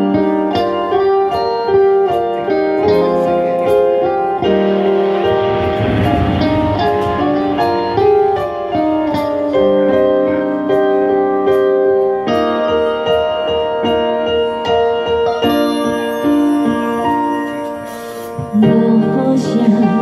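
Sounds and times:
keyboard ballad introduction: 0:00.0 - 0:20.0.

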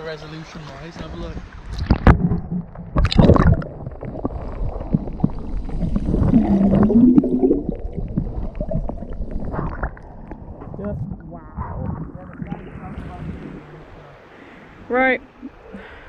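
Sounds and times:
water splashing: 0:00.3 - 0:16.0
muffled underwater gurgling and bubbling: 0:01.9 - 0:14.2.

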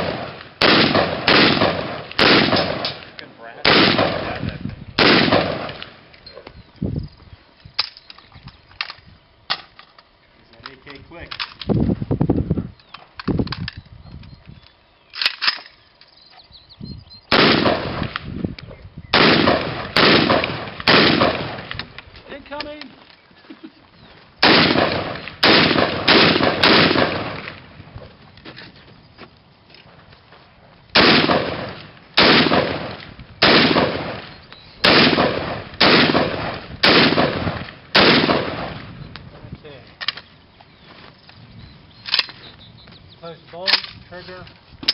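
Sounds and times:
rifle shots: 0:00.0 - 0:06.0, 0:17.3 - 0:18.3, 0:19.1 - 0:22.0, 0:24.4 - 0:27.7, 0:30.9 - 0:39.0.

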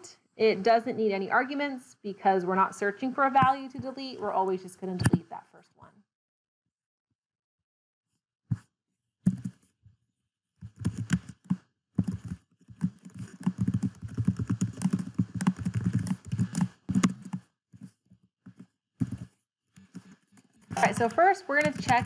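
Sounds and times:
typing on a computer keyboard: 0:09.3 - 0:09.6, 0:10.7 - 0:17.5, 0:20.8 - 0:22.0.

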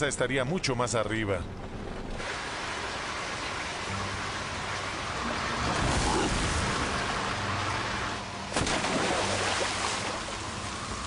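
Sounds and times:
heavy rain and wind: 0:01.7 - 0:11.0.

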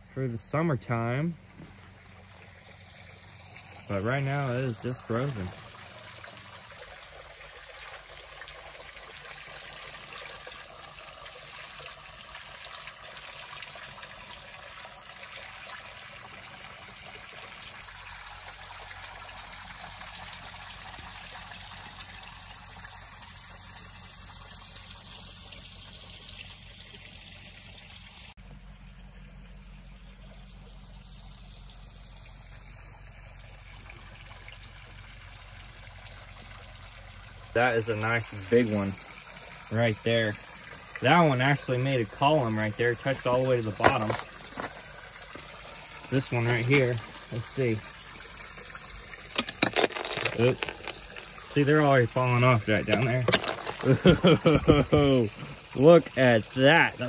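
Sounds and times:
water trickling and splashing: 0:00.0 - 0:57.0.

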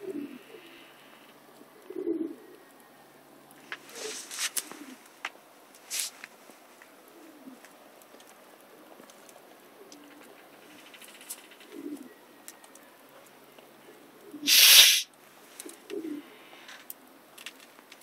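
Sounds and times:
bird cooing: 0:00.0 - 0:03.0, 0:03.9 - 0:05.0, 0:07.1 - 0:07.6, 0:09.7 - 0:13.0, 0:13.8 - 0:17.2
wood fire crackling: 0:03.4 - 0:13.7, 0:16.9 - 0:18.0.

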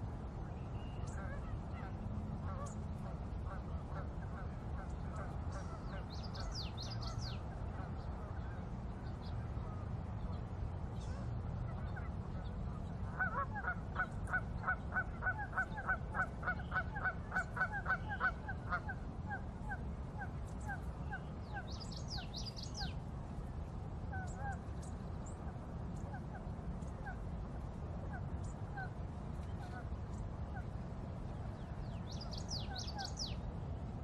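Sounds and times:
steady low rumble: 0:00.0 - 0:34.0
birds calling: 0:03.8 - 0:08.6, 0:31.6 - 0:33.4.

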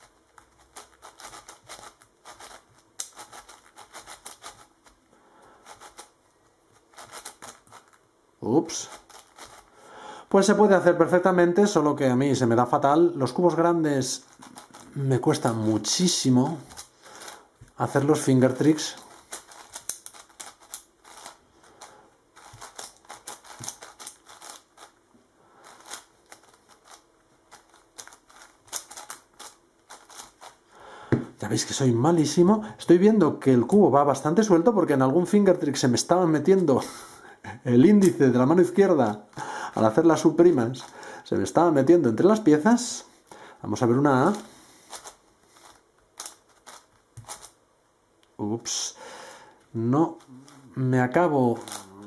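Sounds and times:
speed cube plastic clicks: 0:00.8 - 0:04.7, 0:19.2 - 0:24.9, 0:25.6 - 0:30.6, 0:44.3 - 0:47.6.

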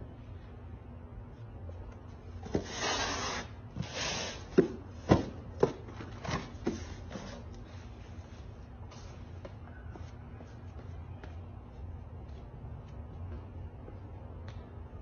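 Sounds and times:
cardboard boxes scraping: 0:02.4 - 0:07.5
dull knocks of boxes stacked: 0:04.5 - 0:07.2.

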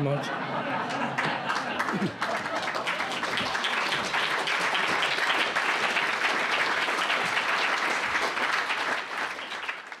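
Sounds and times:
audience applauding: 0:00.9 - 0:10.0.

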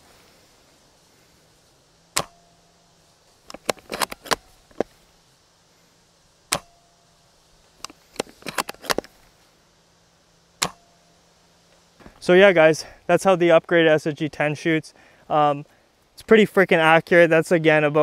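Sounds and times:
airsoft rifle shot snap: 0:02.1 - 0:02.5, 0:06.5 - 0:06.8, 0:10.6 - 0:11.0
rifle bolt clicks: 0:03.5 - 0:04.9, 0:07.8 - 0:09.1.

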